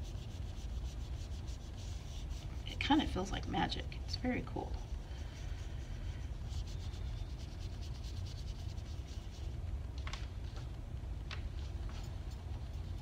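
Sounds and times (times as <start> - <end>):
drawing tool scratching on paper: 0.0 - 2.7
low steady hum: 0.0 - 13.0.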